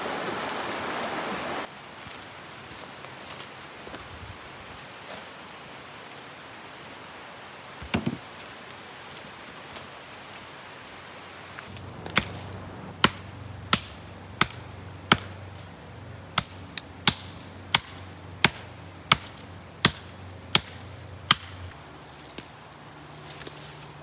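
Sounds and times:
axe chopping branch: 11.7 - 15.7, 16.4 - 22.6.

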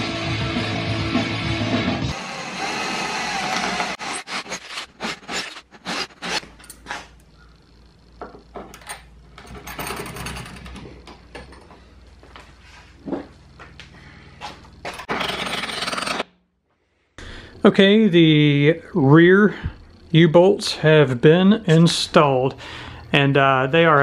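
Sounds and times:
rock music: 0.0 - 2.2
power drill boring through wood: 2.0 - 6.5, 15.1 - 16.3.

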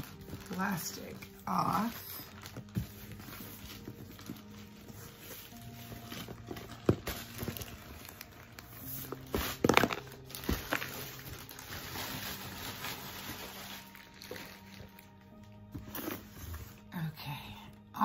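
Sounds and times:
plastic packaging crinkling: 0.0 - 16.9.

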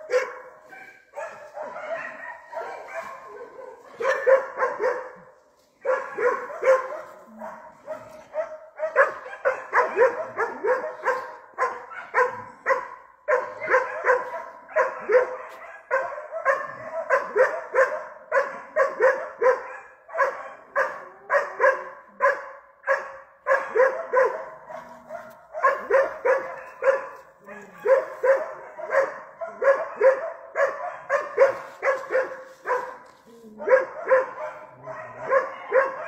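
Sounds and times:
dog barking rapidly: 0.0 - 5.2, 5.8 - 33.0, 33.6 - 36.0.

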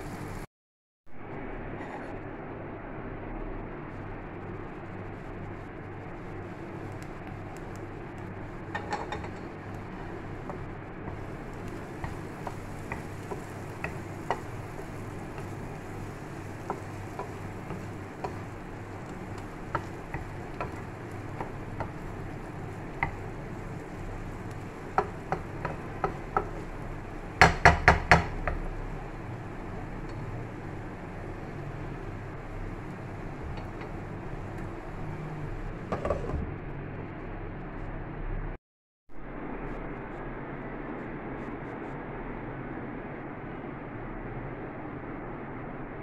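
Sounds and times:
steady hiss: 0.0 - 0.5, 3.7 - 37.9
spatula scraping frying pan: 8.6 - 36.4
spatula knocking on pan: 10.4 - 28.8.

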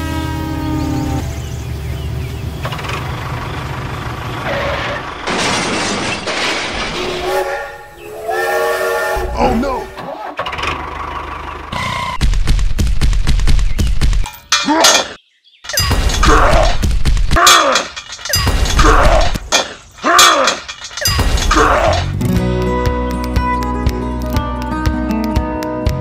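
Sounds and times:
loud crash: 5.2 - 7.5.

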